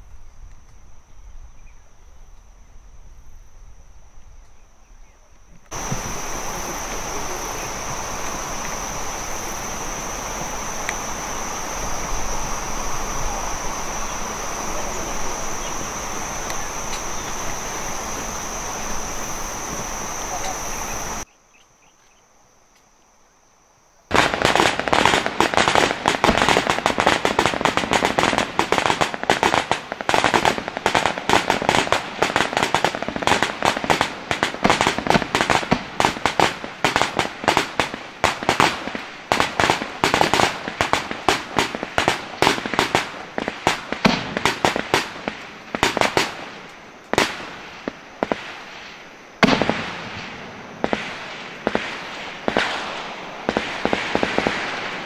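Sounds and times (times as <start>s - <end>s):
rapid rifle gunfire: 50.9s - 55.0s.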